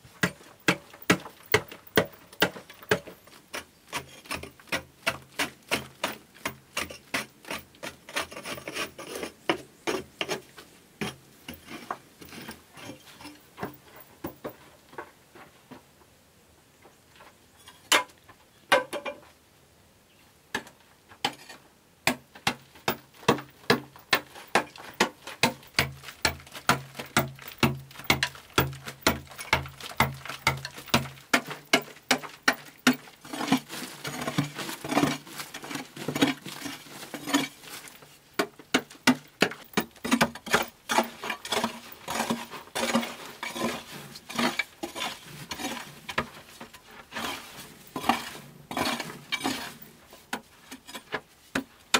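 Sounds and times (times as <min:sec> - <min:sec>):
scraping of loose soil: 0:00.0 - 0:15.9, 0:21.1 - 0:51.9.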